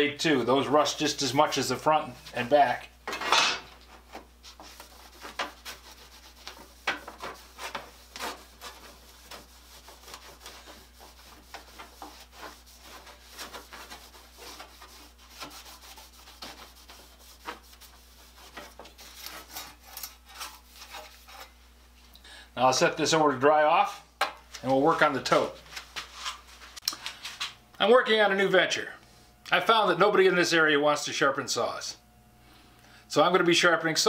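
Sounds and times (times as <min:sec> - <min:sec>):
cloth rubbing on saw blade: 0:03.8 - 0:21.6.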